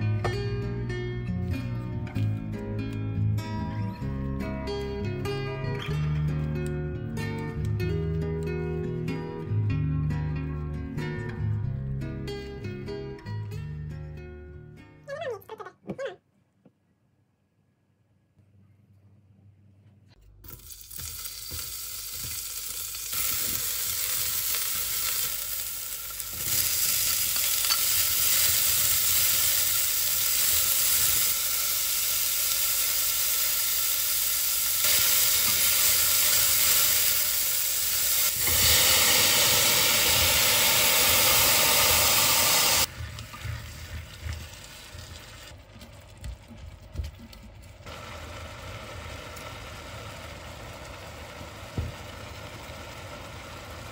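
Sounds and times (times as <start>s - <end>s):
vegetables sizzling in a pot: 20.4s - 46.2s, 47.8s - 53.9s
chopsticks stirring: 42.9s - 47.7s.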